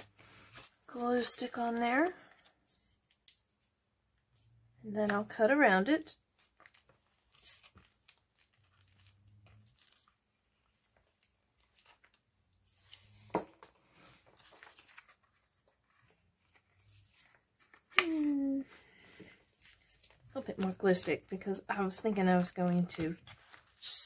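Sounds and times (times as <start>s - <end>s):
paper rustling: 0.0s - 3.6s, 6.3s - 24.0s.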